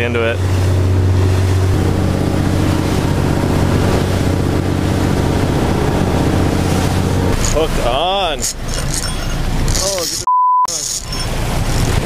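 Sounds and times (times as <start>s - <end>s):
wind on microphone: 0.0s - 7.5s
water rushing past hull: 0.0s - 10.0s, 11.0s - 12.0s
boat engine drone: 0.0s - 12.0s.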